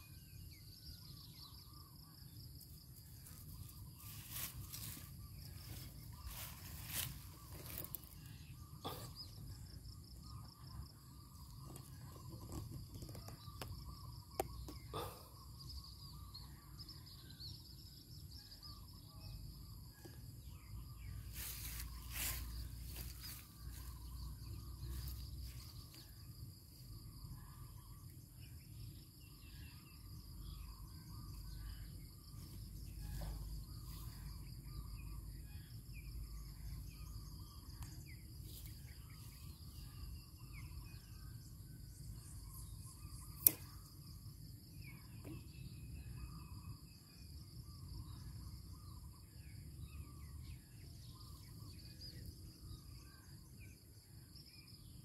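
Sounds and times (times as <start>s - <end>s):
sharp click: 43.3s - 43.9s.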